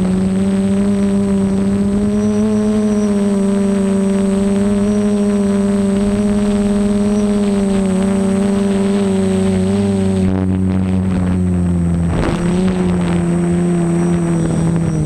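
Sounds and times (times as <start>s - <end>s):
drone motors buzzing hum: 0.0s - 15.0s.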